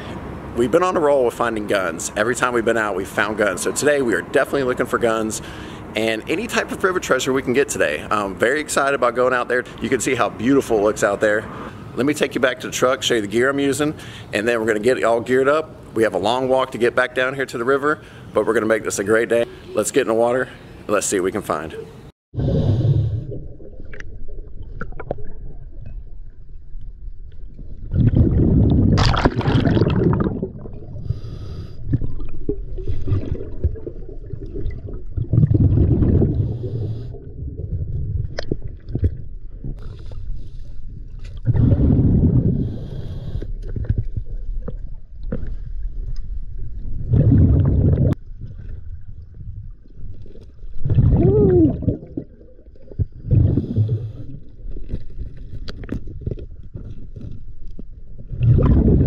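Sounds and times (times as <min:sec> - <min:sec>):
underwater exhaled bubbles: 0:27.4 - 0:39.8, 0:41.1 - 0:45.6, 0:46.7 - 0:56.7, 0:58.2 - 0:59.0.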